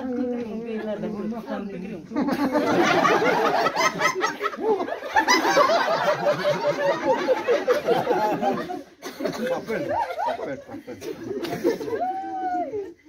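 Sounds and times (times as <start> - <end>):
people talking: 0.0 - 6.0
crowd laughing: 2.1 - 13.0.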